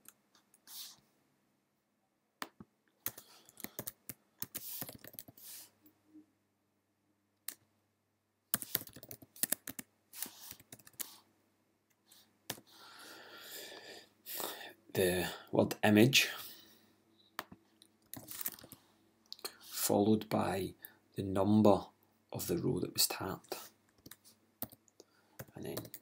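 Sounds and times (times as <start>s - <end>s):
computer keyboard typing: 2.4s - 5.4s, 8.5s - 11.2s, 17.4s - 18.8s, 24.0s - 26.0s.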